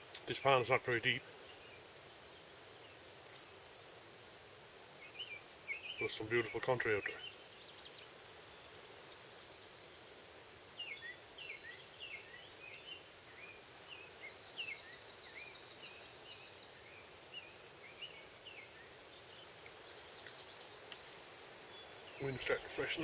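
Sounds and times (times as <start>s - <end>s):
songbird chirping: 0.0s - 23.0s
steady outdoor hiss: 0.0s - 23.0s.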